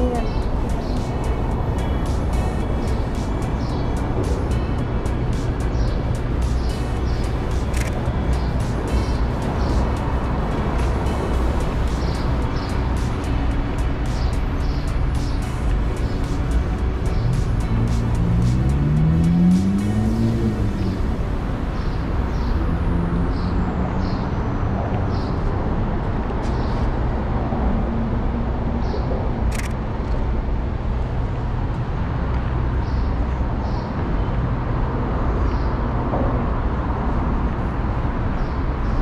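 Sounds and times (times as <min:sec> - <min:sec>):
city traffic rumble: 0:00.0 - 0:39.0
sharp click: 0:07.7 - 0:08.0, 0:29.5 - 0:29.8.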